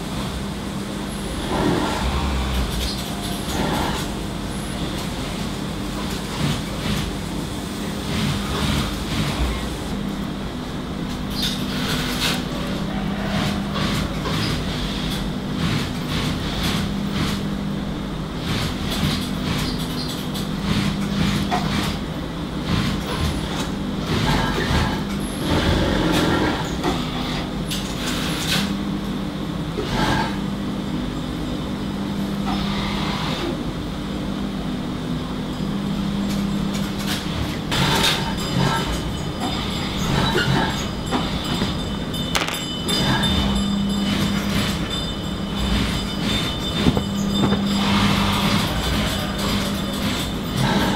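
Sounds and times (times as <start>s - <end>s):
machinery humming: 0.0s - 50.9s
clicks and clatter: 41.6s - 43.2s.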